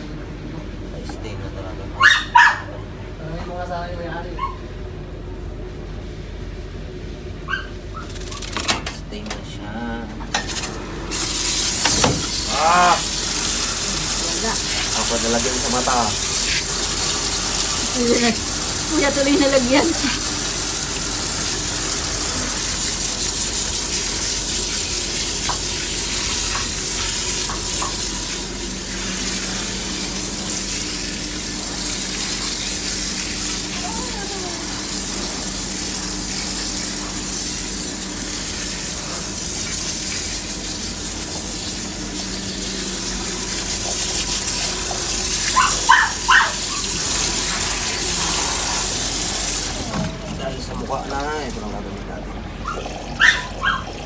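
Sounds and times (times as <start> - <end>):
water spraying from a hose: 10.5 - 51.8.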